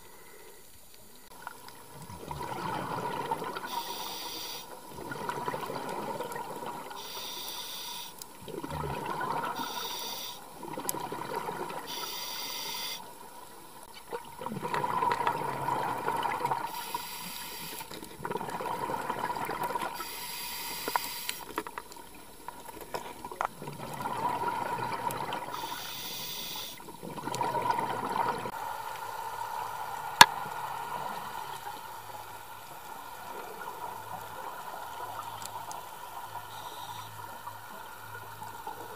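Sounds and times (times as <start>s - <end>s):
regulator inhale hiss: 0.0s - 1.3s, 3.6s - 4.8s, 6.9s - 8.2s, 9.6s - 10.5s, 11.8s - 13.1s, 16.7s - 18.0s, 20.0s - 21.6s, 25.5s - 26.8s, 36.5s - 37.2s
exhaled bubbles rushing: 1.9s - 3.8s, 4.9s - 7.0s, 8.4s - 9.7s, 10.6s - 11.9s, 14.1s - 16.7s, 18.2s - 20.0s, 23.6s - 25.6s, 26.9s - 28.6s.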